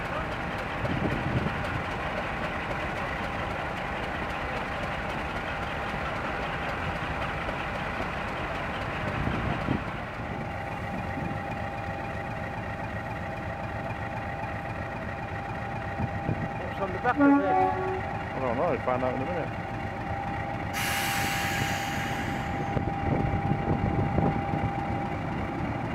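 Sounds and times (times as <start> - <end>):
locomotive diesel engine idling: 0.0 - 25.9.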